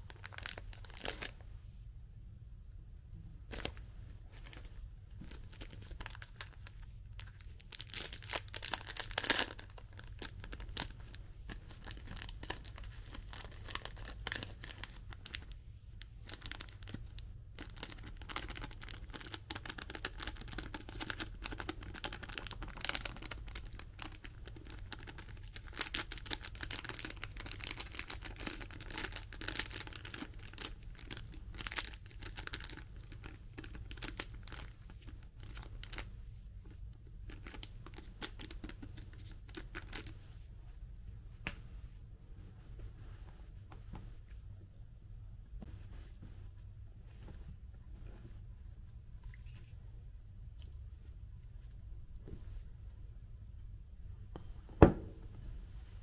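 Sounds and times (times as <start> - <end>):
plastic wrappers crinkling and tearing: 0.0 - 1.4, 3.5 - 40.2.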